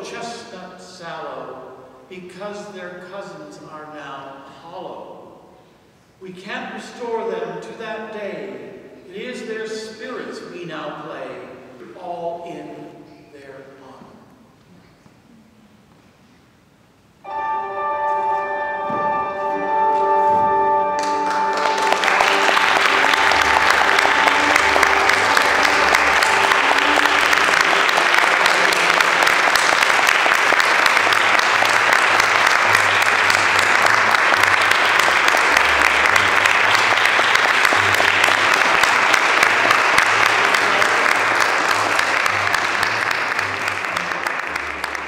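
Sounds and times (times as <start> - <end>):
held music notes ringing: 17.2 - 29.5
audience applauding: 21.0 - 45.0.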